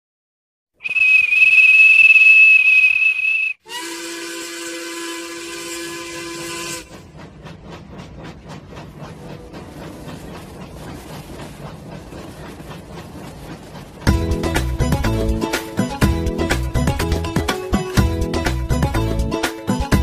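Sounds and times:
high steam whistle blast: 0.8s - 6.9s
steam engine chuffing: 3.7s - 20.0s.

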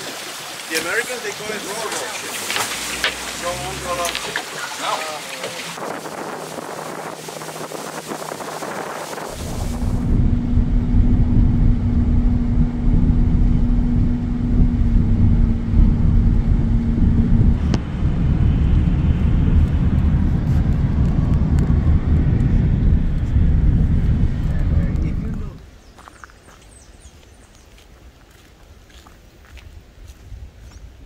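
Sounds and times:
engine hum: 1.7s - 26.2s
boat motor running: 2.0s - 25.6s
wind rumble on microphone: 5.6s - 31.0s.

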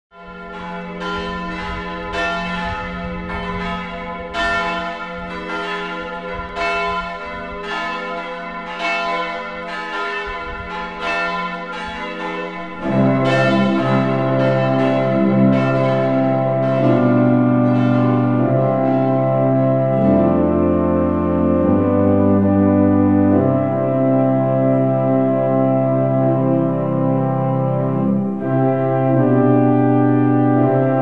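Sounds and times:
deeper bell ringing: 0.1s - 20.2s
church bells ringing: 0.1s - 31.0s.

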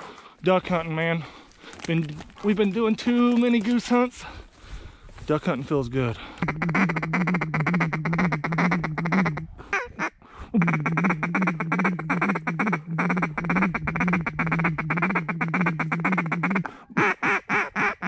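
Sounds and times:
duck call quacking: 6.4s - 18.0s.

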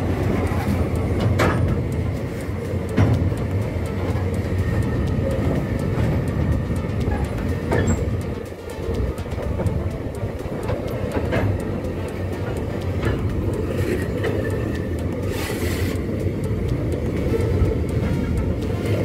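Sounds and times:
wagons clanking: 0.0s - 14.9s
steel wheels rumbling on rails: 0.0s - 19.0s.

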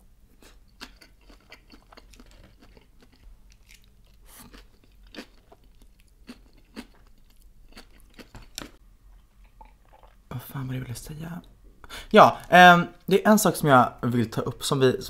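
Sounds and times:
chewing food: 0.4s - 10.2s.

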